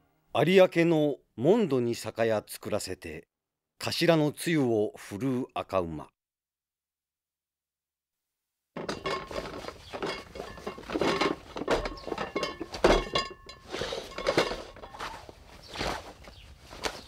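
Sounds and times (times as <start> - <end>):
glass bottles clinking in a crate: 8.8 - 15.2.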